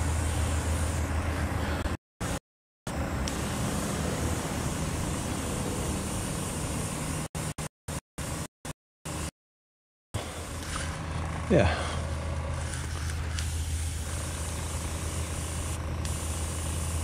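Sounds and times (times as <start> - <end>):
air hissing from airbrush: 0.0 - 2.4, 3.2 - 7.2, 12.6 - 17.0
airbrush compressor running: 0.0 - 7.6, 10.2 - 17.0.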